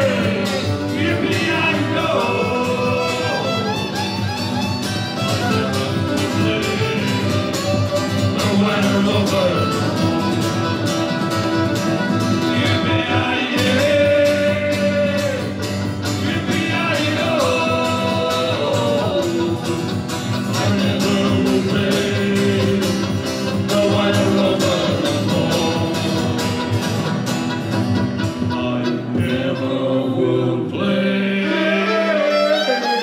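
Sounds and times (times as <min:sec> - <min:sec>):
guitar music with steady beat: 0:00.0 - 0:29.8.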